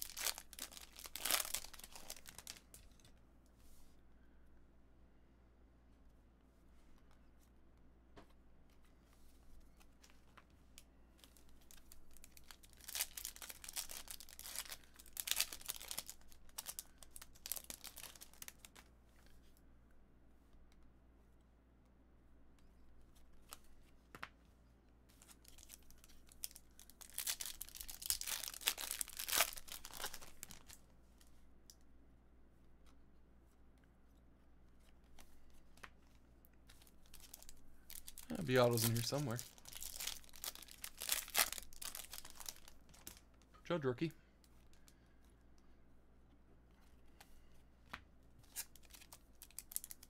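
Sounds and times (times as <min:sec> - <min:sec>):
packaging tearing and crumpling: 0:00.0 - 0:02.8, 0:11.7 - 0:18.8, 0:25.4 - 0:30.8, 0:36.8 - 0:43.2, 0:48.5 - 0:50.0.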